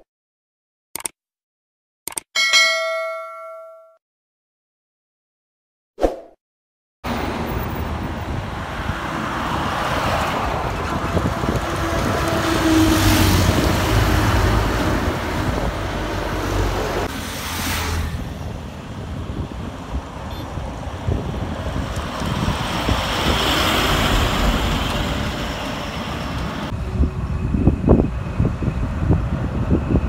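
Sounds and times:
highway traffic of lorries: 0:07.0 - 0:30.0
wind on microphone: 0:07.9 - 0:17.1, 0:18.2 - 0:25.6, 0:26.4 - 0:30.0.

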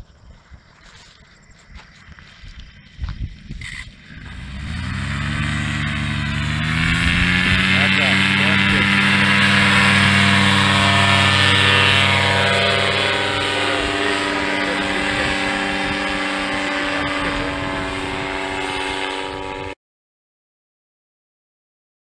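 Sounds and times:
paramotor engine and propeller drone: 0:00.0 - 0:19.8.

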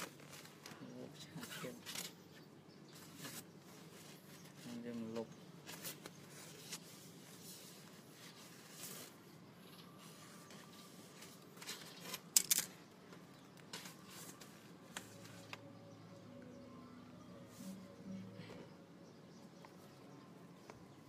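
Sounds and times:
handling clicks and rustles: 0:00.0 - 0:15.7.

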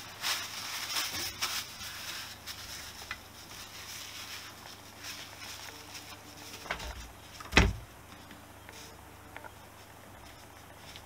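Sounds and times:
paper rustling: 0:00.0 - 0:07.5, 0:09.8 - 0:11.0.

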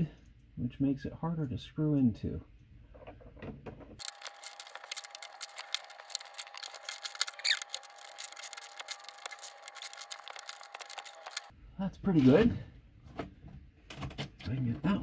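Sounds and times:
short squeak: 0:07.2 - 0:08.3.

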